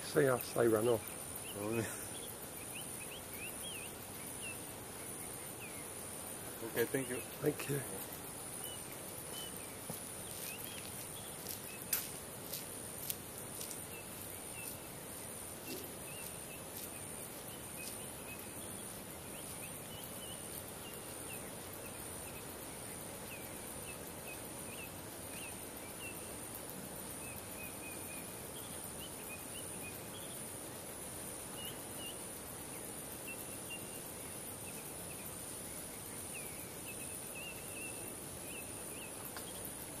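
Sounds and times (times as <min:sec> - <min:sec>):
bird chirps: 0:00.0 - 0:12.0, 0:15.6 - 0:26.4, 0:31.5 - 0:39.7
insect drone: 0:00.0 - 0:40.0
steady hiss: 0:00.0 - 0:40.0.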